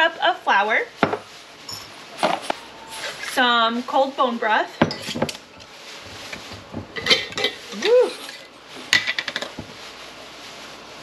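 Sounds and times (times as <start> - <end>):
glass jars clinking on stone: 1.6 - 2.7, 4.8 - 5.4.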